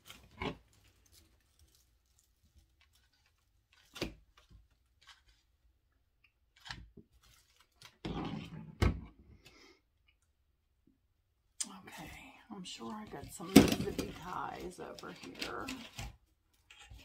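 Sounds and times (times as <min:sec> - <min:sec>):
dry vine crackling and rustling: 0:00.0 - 0:05.5, 0:06.6 - 0:08.0, 0:11.7 - 0:17.0.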